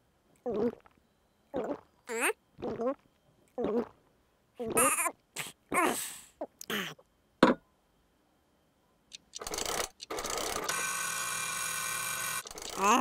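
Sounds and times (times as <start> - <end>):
cartoon vocal sounds: 4.6 - 7.0, 12.7 - 13.0.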